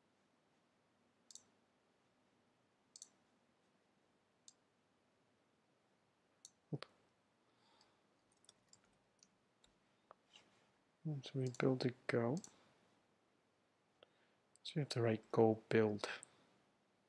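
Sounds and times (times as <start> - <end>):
computer mouse clicks: 1.3 - 1.5, 2.9 - 3.2, 11.4 - 12.6.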